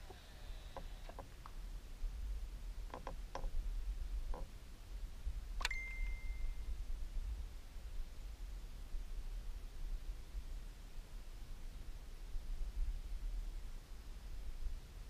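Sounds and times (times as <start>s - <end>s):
ringing ding: 5.6s - 6.7s.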